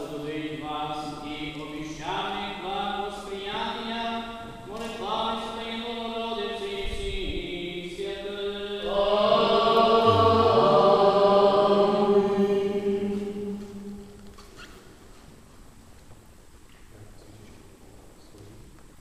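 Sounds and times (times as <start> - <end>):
voices singing chant: 4.8 - 14.3.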